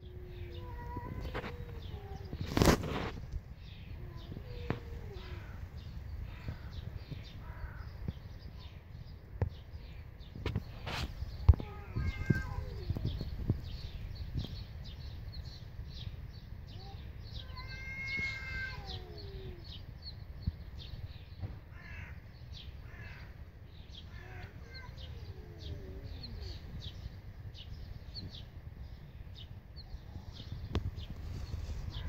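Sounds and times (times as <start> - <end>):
small birds chirping: 0.0 - 32.0
cats yowling: 11.6 - 13.1, 17.4 - 19.7.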